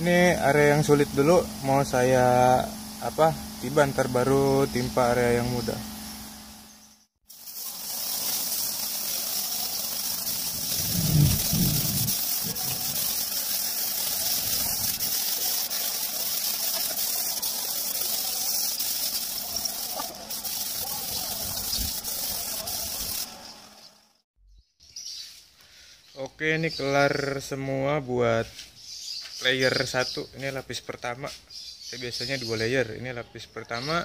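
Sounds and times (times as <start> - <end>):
air spray gun hissing: 0.0 - 6.7, 7.3 - 24.1.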